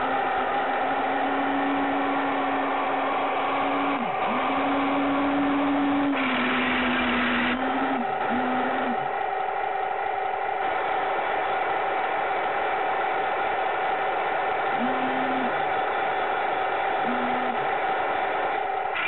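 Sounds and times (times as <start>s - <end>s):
toy tank electric motor whine: 0.0s - 9.8s, 14.7s - 15.8s, 17.0s - 19.0s.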